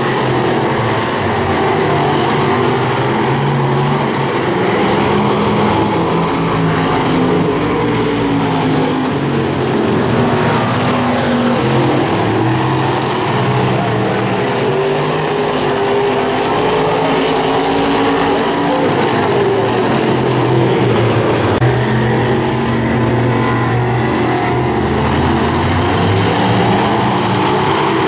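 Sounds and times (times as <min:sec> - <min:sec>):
racing car engines revving: 0:00.0 - 0:28.0.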